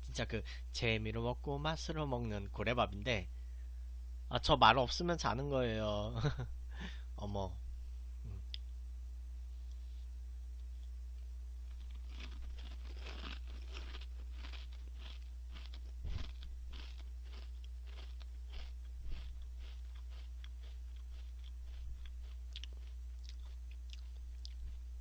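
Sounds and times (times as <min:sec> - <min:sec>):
steady low hum: 0:00.0 - 0:25.0
crackers being chewed: 0:11.6 - 0:25.0.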